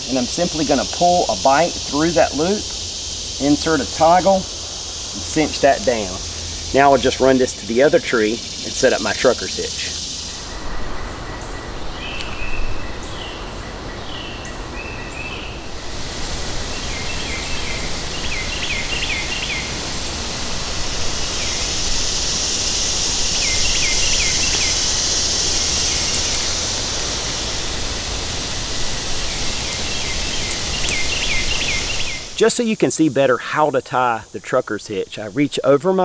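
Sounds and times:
steady woodland hiss: 0.0s - 36.0s
bird chirps: 10.2s - 15.7s, 16.7s - 19.7s, 23.1s - 26.6s, 29.3s - 32.4s.

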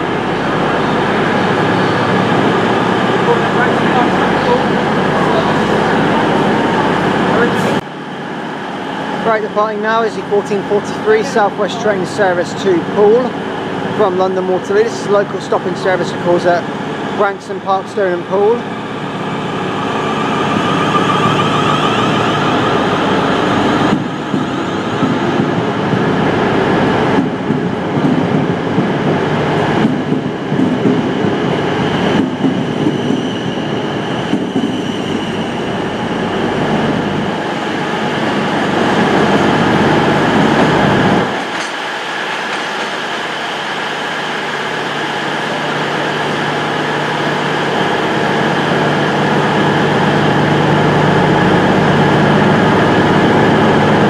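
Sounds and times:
steady low hum: 0.0s - 32.5s
electric traction whine: 0.0s - 54.0s
electric train accelerating: 0.0s - 54.0s.

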